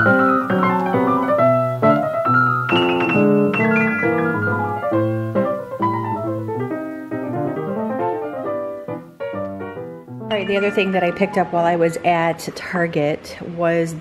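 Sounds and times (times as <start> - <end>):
piano music: 0.0 - 12.9.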